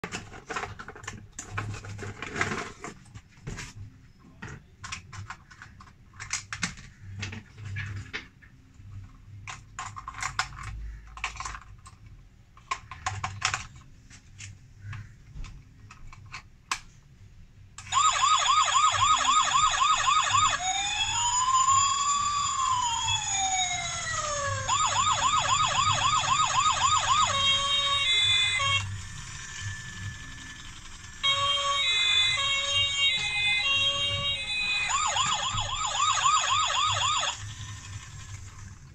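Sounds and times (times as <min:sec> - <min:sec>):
plastic toy and packaging rattling: 0:00.0 - 0:17.0, 0:17.8 - 0:38.9
toy police siren: 0:17.8 - 0:38.4.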